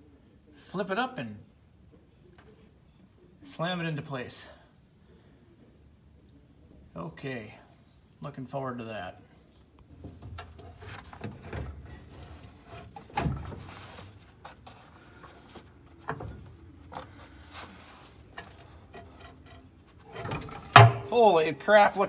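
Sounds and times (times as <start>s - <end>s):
metal knocks and clunks: 9.9s - 17.2s, 18.3s - 21.2s.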